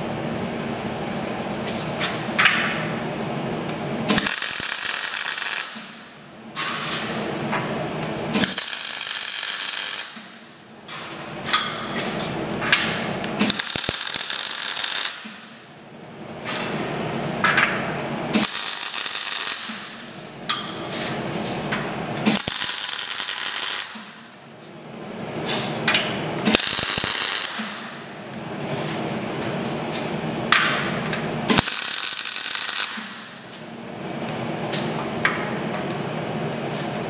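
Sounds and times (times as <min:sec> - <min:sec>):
electric arc welding: 0:04.1 - 0:06.0, 0:08.3 - 0:10.4, 0:13.4 - 0:15.4, 0:18.3 - 0:20.1, 0:22.2 - 0:24.2, 0:26.4 - 0:28.0, 0:31.5 - 0:33.4.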